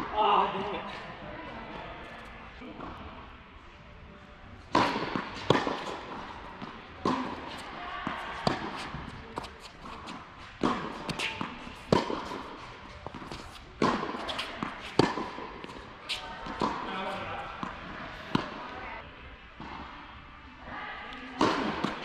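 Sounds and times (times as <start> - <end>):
racket hitting tennis ball: 4.7 - 18.8, 21.4 - 22.0
tennis ball bouncing: 4.7 - 18.8, 21.4 - 22.0.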